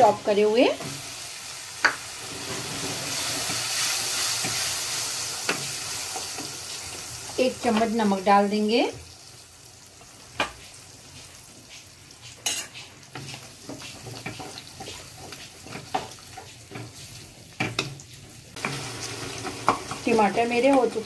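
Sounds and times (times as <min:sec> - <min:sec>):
low frying sizzle: 0:00.0 - 0:21.0
spatula stirring and scraping: 0:01.8 - 0:08.0, 0:10.4 - 0:21.0.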